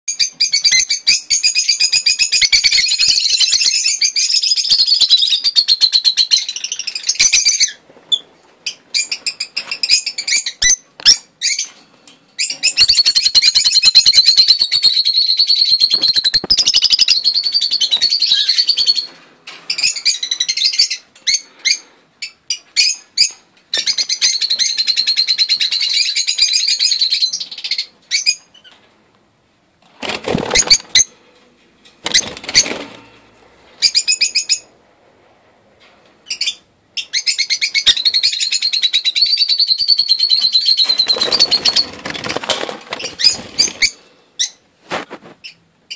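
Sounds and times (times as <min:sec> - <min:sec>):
wing flapping: 0:29.9 - 0:31.0, 0:32.0 - 0:33.1, 0:40.8 - 0:43.9
lovebirds chattering shrilly: 0:36.3 - 0:44.6.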